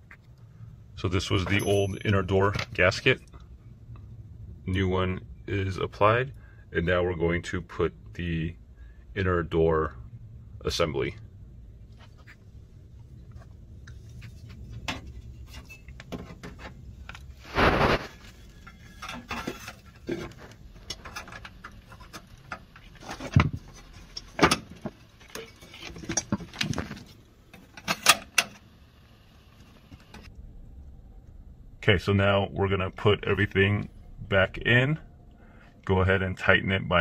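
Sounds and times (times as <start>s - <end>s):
metal clinks knocks and scrapes: 1.5s - 2.2s, 14.0s - 17.2s, 18.1s - 27.0s.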